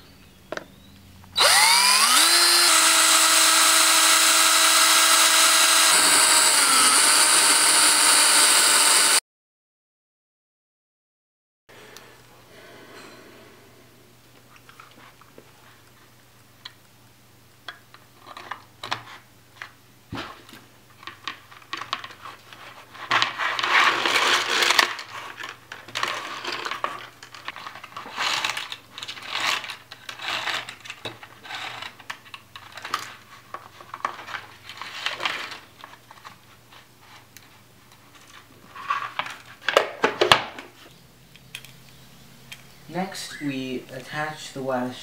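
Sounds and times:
scraping and rustling: 18.1s - 39.8s.

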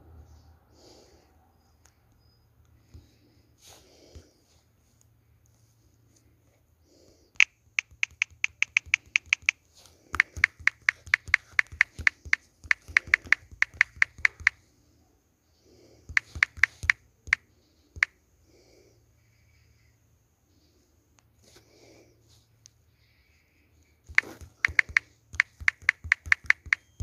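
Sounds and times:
quick sharp clicks: 7.4s - 14.6s, 16.1s - 17.4s, 18.0s - 18.2s, 24.0s - 27.0s.

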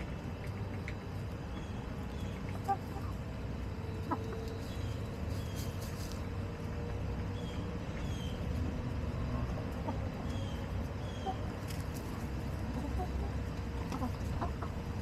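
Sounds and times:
hens clucking: 0.0s - 15.0s.

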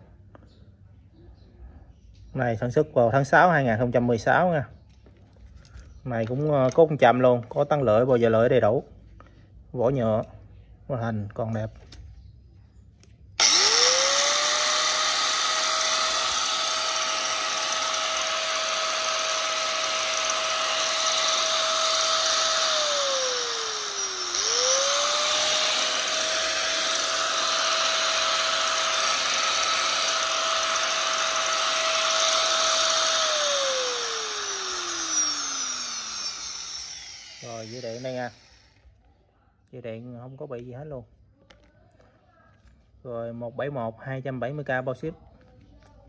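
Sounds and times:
angle grinder whining: 13.4s - 38.8s.

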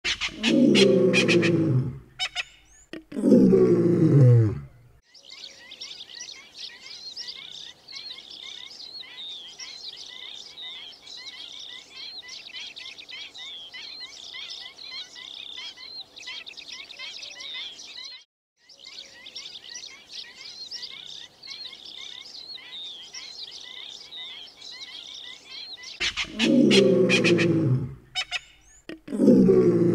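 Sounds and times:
high chirping bird calls: 0.1s - 1.6s, 2.2s - 3.0s, 5.1s - 29.0s.

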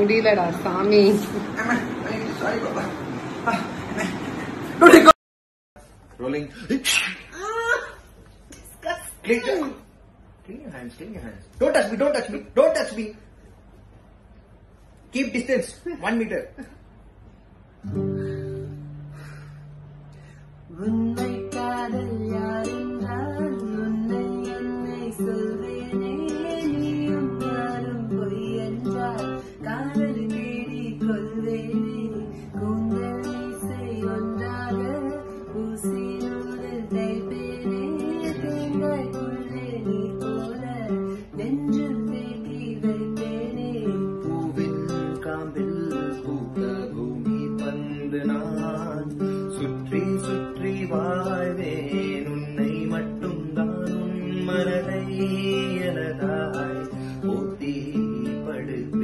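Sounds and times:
classical guitar strumming: 17.8s - 19.9s, 20.7s - 59.0s
woman singing: 20.7s - 49.0s
man singing: 42.6s - 59.0s.

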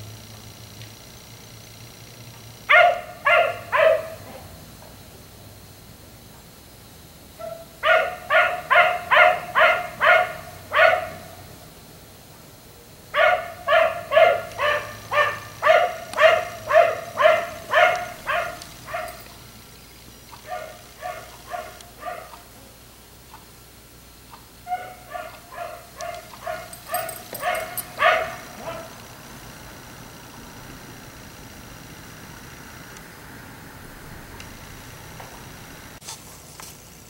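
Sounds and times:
dog barking: 2.7s - 4.5s, 7.4s - 11.4s, 13.1s - 19.4s, 20.3s - 22.5s, 24.6s - 29.0s.

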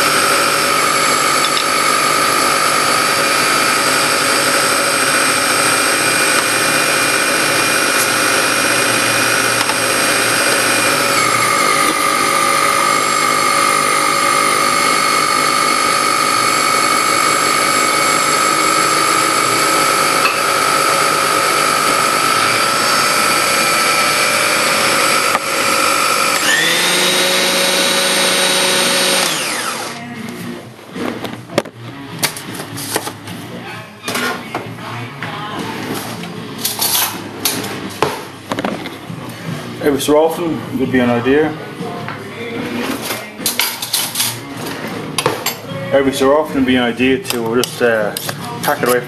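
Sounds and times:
food processor motor whining: 0.0s - 30.0s.

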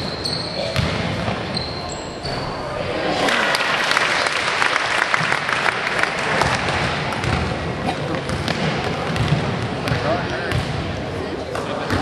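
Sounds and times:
crowd applauding: 3.1s - 6.9s.

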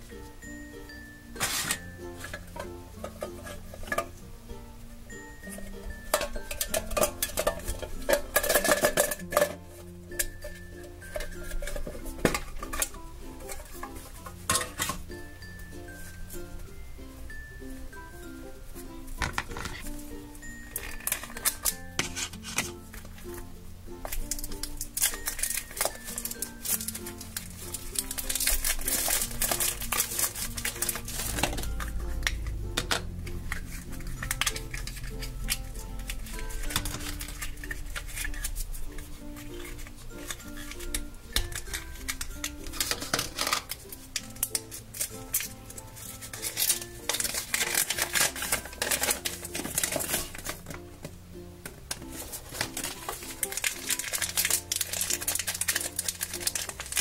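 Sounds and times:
light background music: 0.0s - 57.0s
packaging crinkling and tearing: 1.4s - 1.9s, 20.7s - 22.7s, 24.0s - 50.8s, 51.9s - 57.0s
metal tin clinking and tapping: 1.4s - 4.2s, 5.5s - 15.1s, 19.2s - 19.9s, 20.8s - 23.0s, 24.0s - 38.5s, 39.4s - 50.8s.

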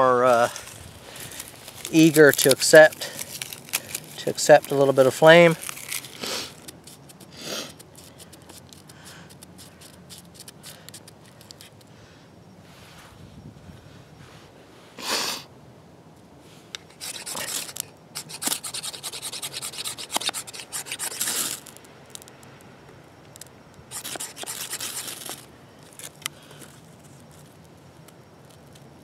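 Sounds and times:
knife scraping ferrocerium rod: 16.9s - 21.7s, 23.9s - 25.4s.

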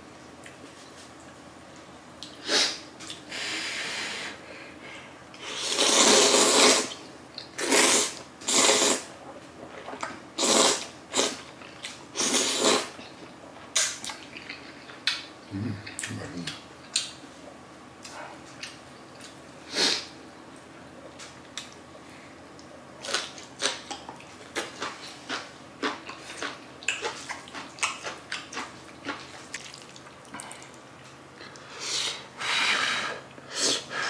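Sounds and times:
noodles slurping: 5.4s - 7.0s
eating sounds: 5.4s - 17.1s, 22.6s - 32.2s.

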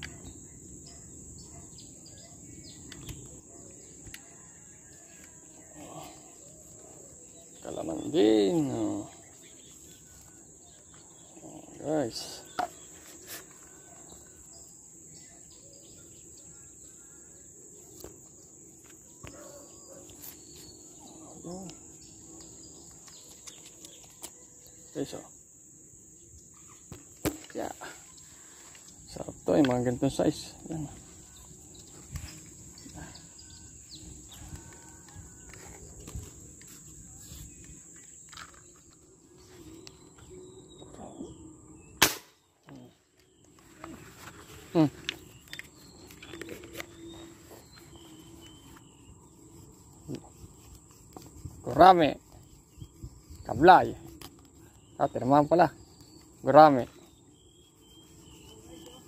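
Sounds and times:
faint outdoor background noise: 0.0s - 59.0s
high-pitched insect drone: 2.2s - 41.9s, 44.7s - 59.0s
airgun shot: 42.0s - 42.4s.

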